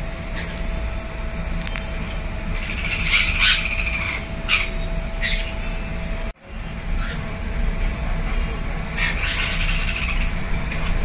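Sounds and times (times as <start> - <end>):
steady hum: 0.0 - 11.0
parrots squawking: 0.3 - 0.6, 2.5 - 6.0, 7.0 - 7.2, 8.9 - 11.0.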